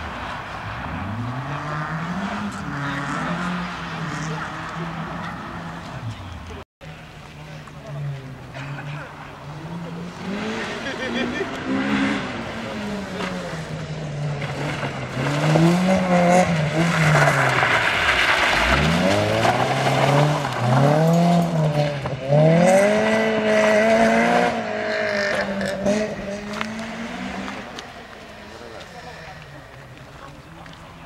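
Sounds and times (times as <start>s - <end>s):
rally car engine revving: 0.0s - 6.6s, 7.6s - 31.0s
tyres scrabbling on gravel: 16.5s - 21.4s.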